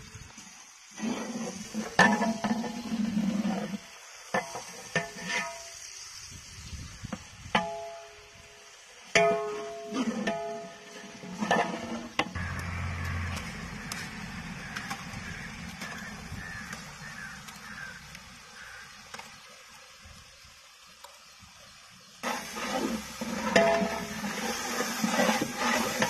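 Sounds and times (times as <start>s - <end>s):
onions sizzling in hot oil: 0.0s - 26.0s.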